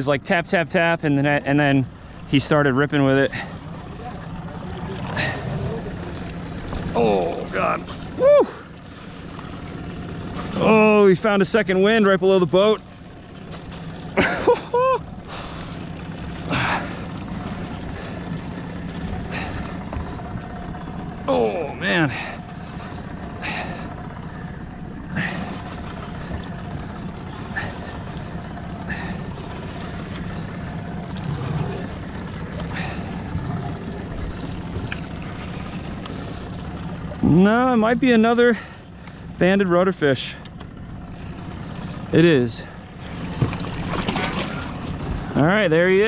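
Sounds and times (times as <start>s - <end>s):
boat engine idling: 0.0s - 46.0s
water noise: 0.0s - 46.0s
wind: 0.0s - 46.0s
man shouting: 6.9s - 8.6s.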